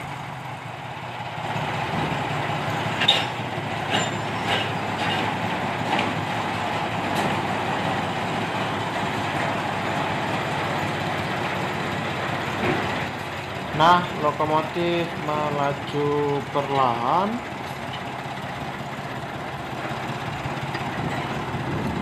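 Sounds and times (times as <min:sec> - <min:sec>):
diesel locomotive engine running: 0:00.0 - 0:22.0
sharp metallic clanks: 0:02.9 - 0:06.2.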